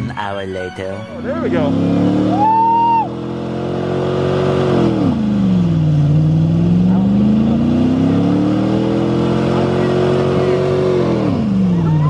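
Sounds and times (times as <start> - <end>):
pickup engine revving high: 1.2 - 12.0
tire spinning: 1.2 - 12.0
high whoop: 2.3 - 3.2.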